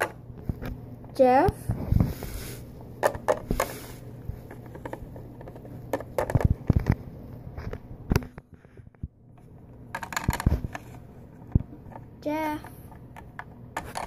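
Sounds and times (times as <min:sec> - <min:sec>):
plastic toys tapping: 0:03.0 - 0:03.7, 0:04.4 - 0:07.0, 0:09.9 - 0:11.7.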